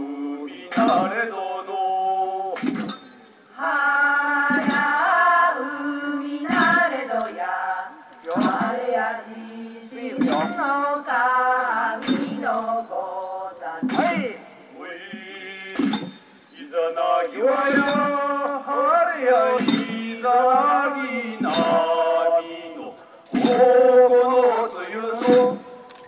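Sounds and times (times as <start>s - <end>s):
group singing: 0.0s - 26.0s
sharp percussive strikes: 0.7s - 1.3s, 2.5s - 3.3s, 4.4s - 5.3s, 6.4s - 7.3s, 8.3s - 9.0s, 10.2s - 10.9s, 12.0s - 12.8s, 13.8s - 14.4s, 15.5s - 16.5s, 17.5s - 18.4s, 19.4s - 22.3s, 23.3s - 24.5s, 25.2s - 25.9s.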